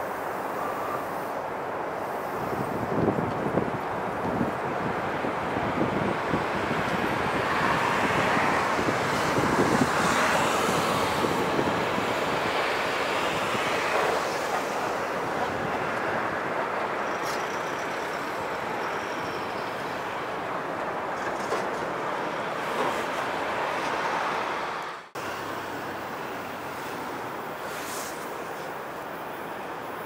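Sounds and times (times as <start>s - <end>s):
train wheels rumbling on rail: 0.6s - 24.5s.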